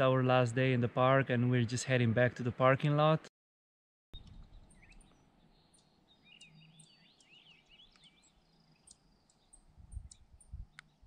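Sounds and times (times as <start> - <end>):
bird warbling chirps: 4.2 - 10.4.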